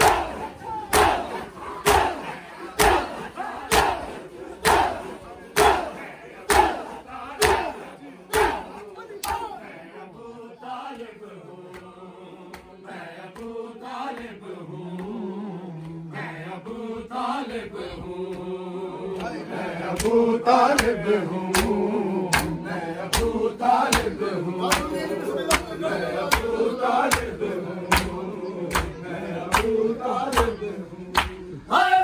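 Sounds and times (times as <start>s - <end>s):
hands slapping bare chests: 0.0s - 2.2s, 2.8s - 4.0s, 4.6s - 7.7s, 19.9s - 31.4s
men chanting a lament: 0.0s - 32.0s.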